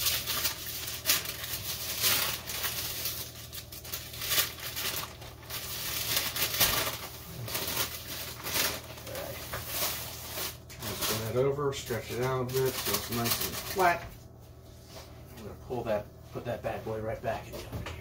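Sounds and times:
parchment paper crinkling: 0.0 - 14.1.

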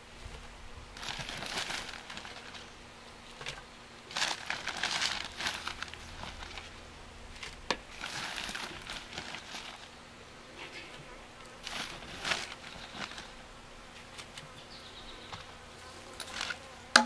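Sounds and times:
potting mix rustling: 0.0 - 17.0
plastic bag crinkling: 1.0 - 2.8, 3.4 - 9.9, 11.6 - 13.5, 16.1 - 16.6.

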